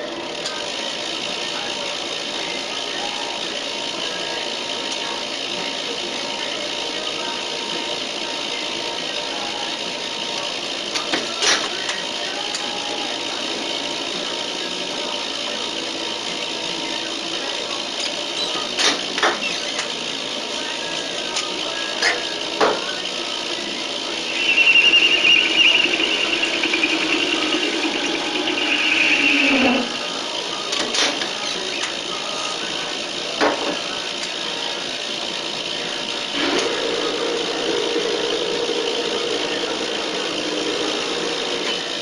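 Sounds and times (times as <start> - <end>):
lathe tool squealing on metal: 24.0 - 31.8.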